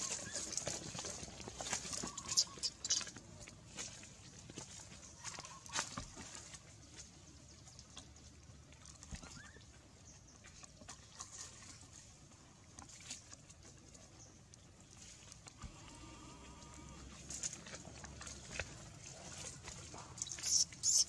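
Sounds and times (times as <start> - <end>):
dry leaves rustling: 0.0 - 6.7.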